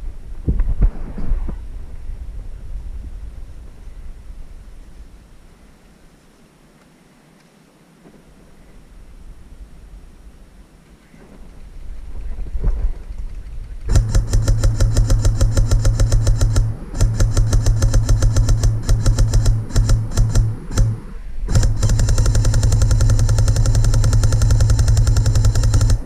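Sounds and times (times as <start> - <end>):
airsoft rifle shot clicks: 13.2 - 26.0
gearbox motor whine: 13.9 - 26.0.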